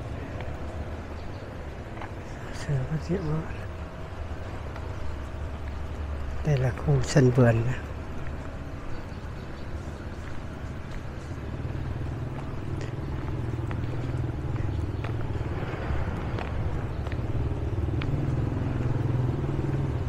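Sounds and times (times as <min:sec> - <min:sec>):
motorbike engine running: 0:10.0 - 0:20.0.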